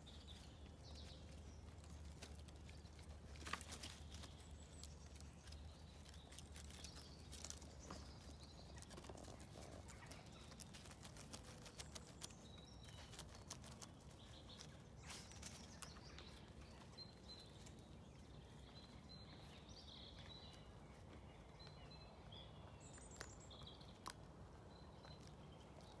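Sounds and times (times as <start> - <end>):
puppy paws scrabbling over wood: 1.7 - 12.4.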